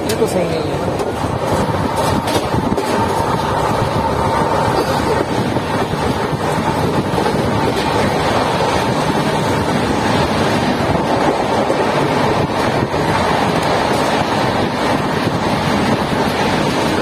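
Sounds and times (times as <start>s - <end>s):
train wheel and rail rumble: 0.0s - 17.0s
wind buffeting microphone: 0.0s - 17.0s.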